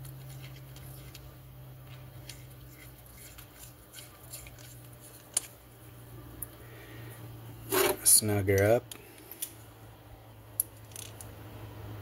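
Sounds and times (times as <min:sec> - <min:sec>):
faint metallic clicks and scrapes: 0:00.0 - 0:05.6, 0:07.7 - 0:09.6, 0:10.6 - 0:11.3
steady low hum: 0:00.0 - 0:12.0.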